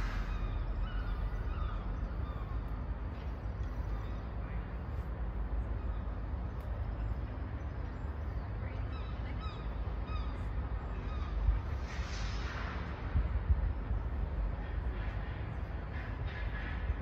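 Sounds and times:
short bird calls: 0:00.0 - 0:02.8
low outdoor rumble: 0:00.0 - 0:17.0.

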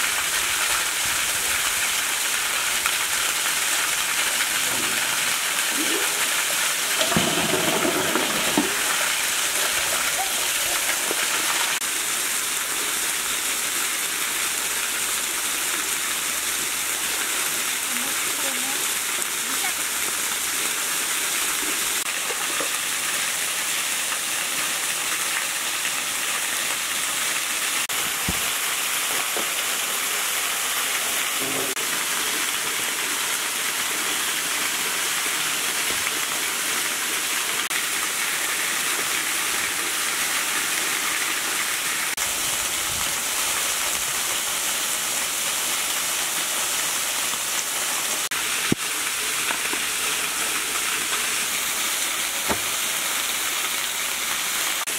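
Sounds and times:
small waterfall rushing into pool: 0:00.0 - 0:54.9
cleaver chopping on wooden board: 0:52.5 - 0:52.7.

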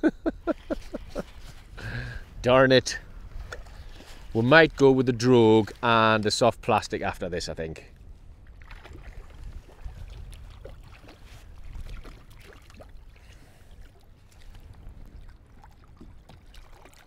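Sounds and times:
water lapping against kayak hull: 0:00.3 - 0:06.9, 0:07.9 - 0:17.0.

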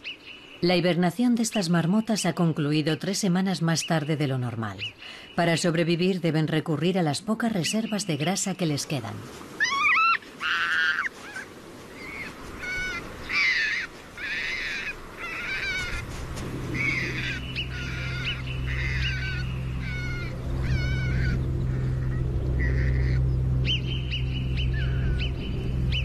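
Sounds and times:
marmots calling: 0:12.0 - 0:16.1, 0:16.7 - 0:26.0
low steady drone: 0:16.2 - 0:26.0.

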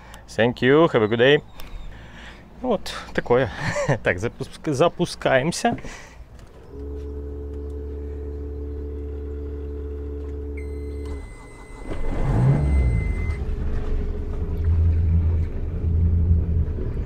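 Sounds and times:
boat engine running: 0:00.7 - 0:17.0
steady hum: 0:06.6 - 0:17.0
high warning beep: 0:06.8 - 0:13.4.

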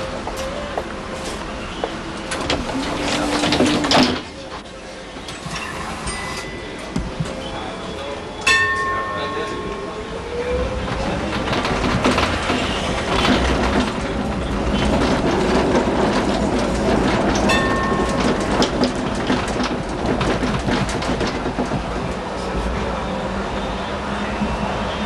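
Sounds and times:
tram wheels and motors rumbling: 0:00.0 - 0:25.0
clicks and rattles from track: 0:02.2 - 0:04.6, 0:10.9 - 0:22.2.

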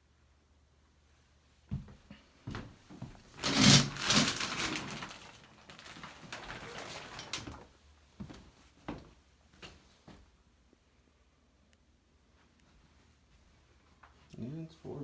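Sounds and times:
shower curtain rings scraping: 0:03.4 - 0:04.8.

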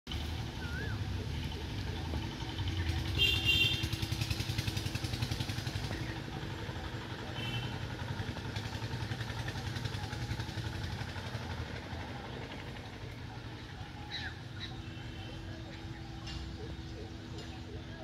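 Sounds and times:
engine running with rapid beat: 0:00.1 - 0:18.0.

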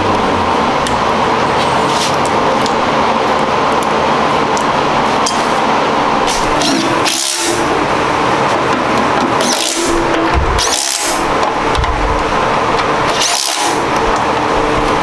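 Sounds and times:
cordless power driver running: 0:06.1 - 0:08.5, 0:09.3 - 0:15.0.

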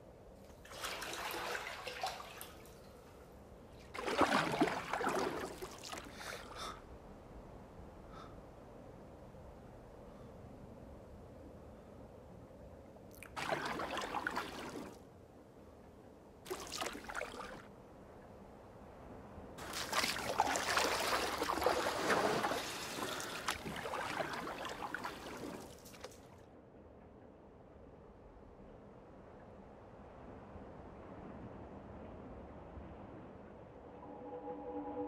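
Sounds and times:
water splashing: 0:00.5 - 0:03.2, 0:03.8 - 0:06.5, 0:13.1 - 0:15.0, 0:16.5 - 0:17.7, 0:19.6 - 0:26.4.

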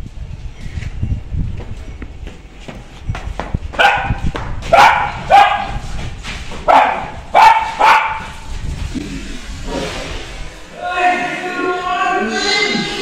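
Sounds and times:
dog barking: 0:03.8 - 0:05.8, 0:06.7 - 0:08.4.

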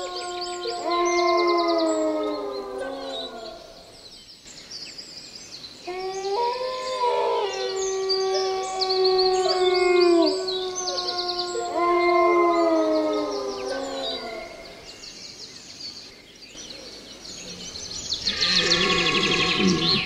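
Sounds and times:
animals howling: 0:00.0 - 0:04.0, 0:05.8 - 0:14.9, 0:18.2 - 0:20.0
small birds chirping: 0:12.9 - 0:20.0.

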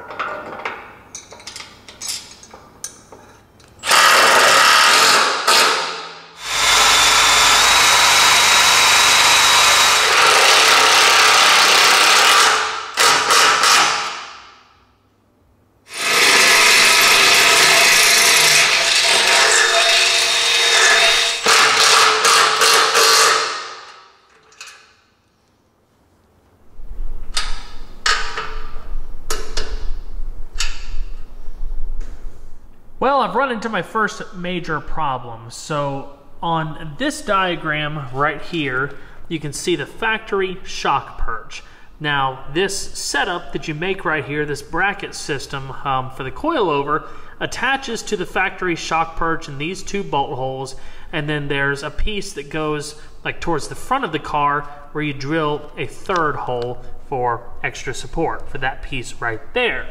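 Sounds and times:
power drill boring into steel: 0:03.8 - 0:14.1, 0:15.9 - 0:23.6.

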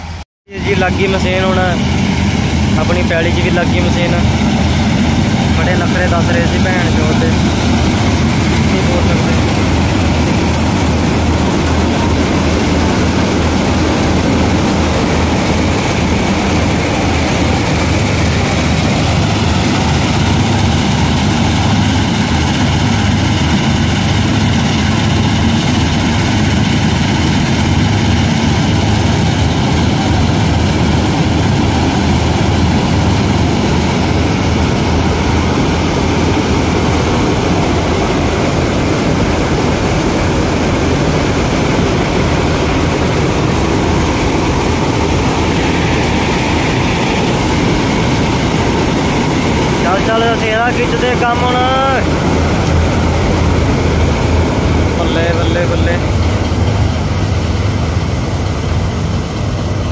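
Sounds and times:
combine harvester running: 0:00.0 - 0:59.9.

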